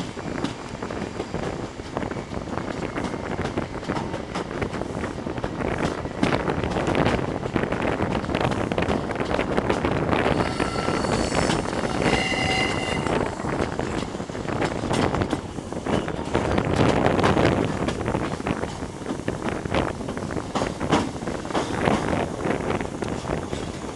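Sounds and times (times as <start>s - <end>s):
train engine: 0.0s - 23.9s
wheels on rails: 0.0s - 23.9s
wind noise: 0.0s - 23.9s
wheel flanges squealing: 10.3s - 13.6s.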